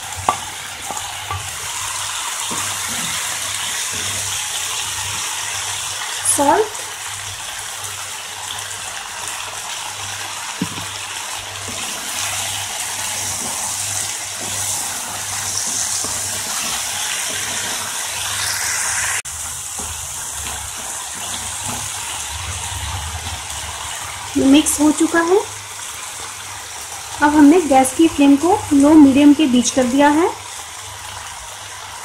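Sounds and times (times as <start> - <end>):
vegetables sizzling in oil: 0.0 - 32.0
wooden spatula knocks: 10.6 - 11.0.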